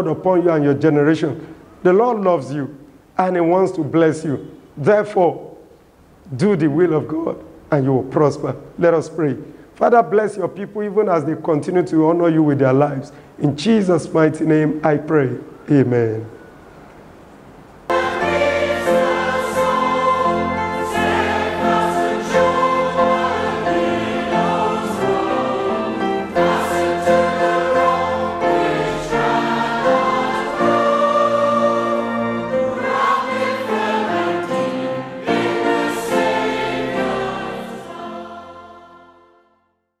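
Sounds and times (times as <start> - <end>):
choir singing: 17.9 - 39.8.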